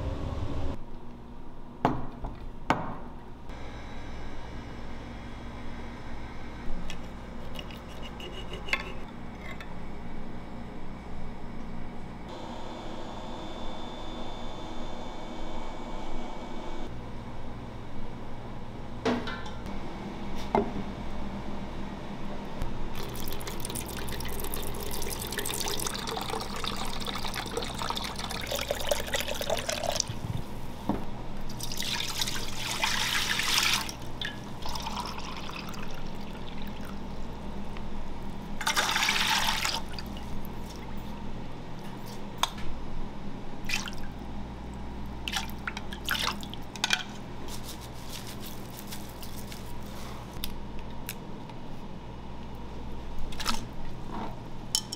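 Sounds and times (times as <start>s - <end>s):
liquid pouring into a pot: 23.0s - 30.1s, 31.6s - 37.2s.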